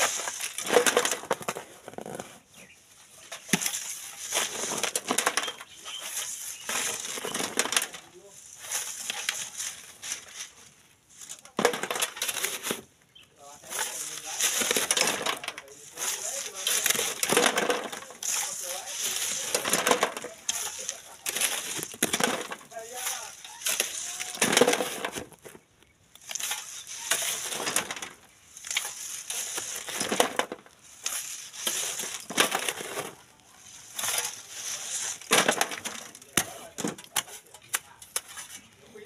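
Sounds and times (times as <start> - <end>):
shovel scraping into gravelly sand: 0.0 - 1.8, 2.5 - 10.6, 13.4 - 25.4, 26.2 - 39.0
sand hissing through wire mesh: 5.8 - 7.3, 13.4 - 14.9, 15.6 - 17.3, 18.0 - 19.6, 26.2 - 27.6, 30.8 - 32.3, 33.4 - 35.3.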